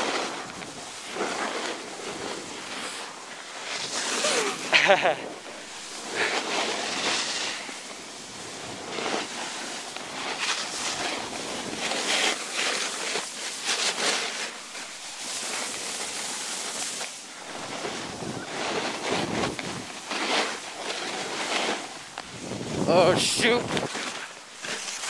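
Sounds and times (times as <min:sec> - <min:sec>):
snowboard scraping over snow: 0:00.0 - 0:25.0
wind noise on microphone: 0:17.5 - 0:20.1, 0:22.1 - 0:25.0.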